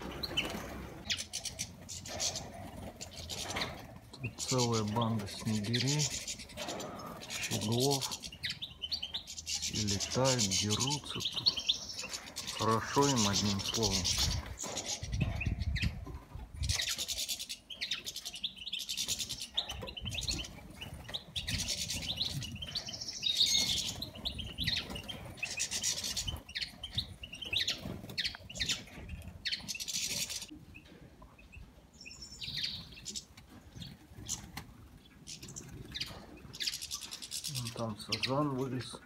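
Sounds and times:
wings fluttering: 0:00.0 - 0:04.7
finches chirping and twittering: 0:00.0 - 0:39.0.

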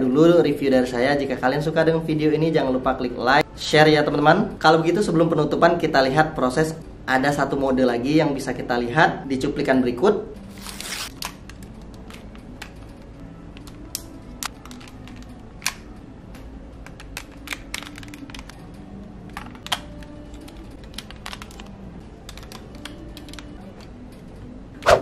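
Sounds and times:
plastic toy parts clicking: 0:13.6 - 0:15.8, 0:16.8 - 0:18.6, 0:19.3 - 0:23.5
plastic snapping: 0:13.6 - 0:15.9, 0:19.3 - 0:21.7.

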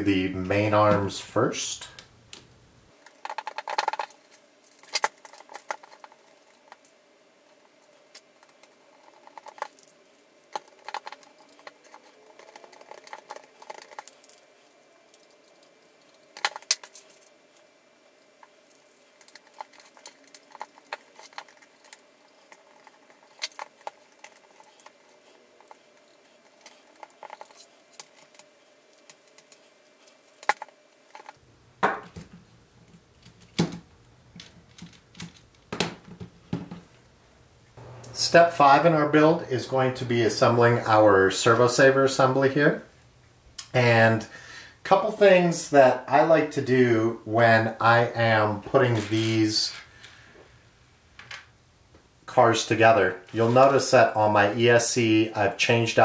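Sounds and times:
faint steady hum: 0:00.0 - 0:56.0
plastic and metal parts clicking: 0:08.1 - 0:17.3.

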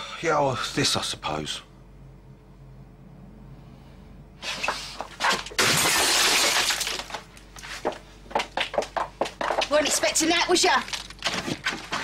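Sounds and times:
glass smashing: 0:05.6 - 0:07.2.

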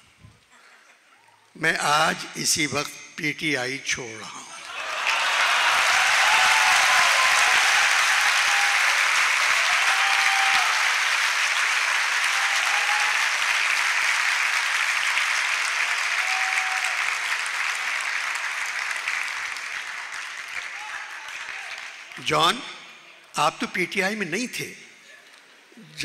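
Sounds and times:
audience applauding: 0:04.6 - 0:22.6.

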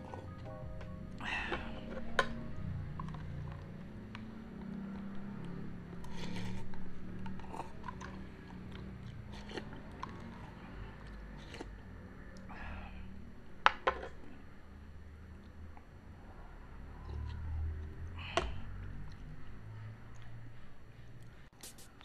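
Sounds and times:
person slurping and chewing noodles: 0:04.6 - 0:12.8.

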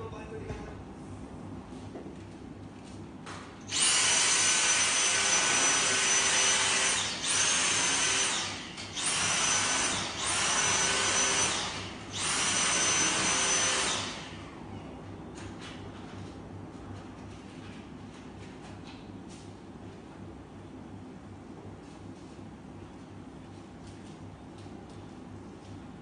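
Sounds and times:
vacuum cleaner running: 0:03.7 - 0:14.4.

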